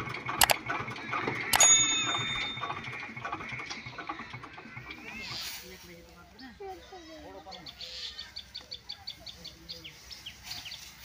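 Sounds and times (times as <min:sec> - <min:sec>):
bright bell ding: 0:01.6 - 0:02.9.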